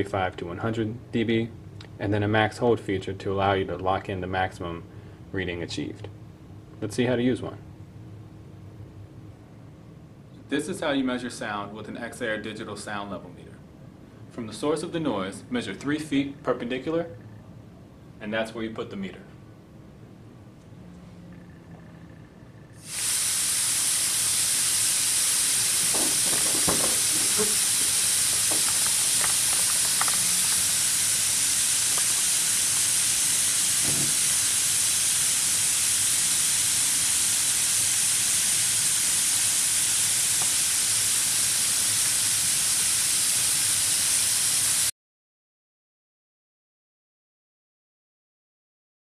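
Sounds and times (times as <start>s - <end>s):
compressed air hissing: 22.8s - 44.9s.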